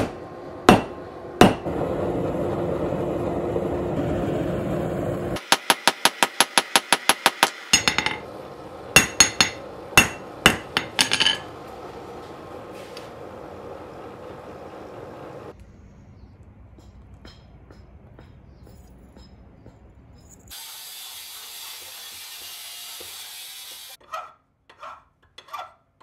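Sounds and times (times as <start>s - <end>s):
hammer striking steel on anvil: 0.0s - 1.7s, 5.4s - 8.3s, 9.0s - 11.5s, 16.7s - 20.3s
low hum: 0.0s - 5.4s
steady rushing noise: 1.1s - 5.4s.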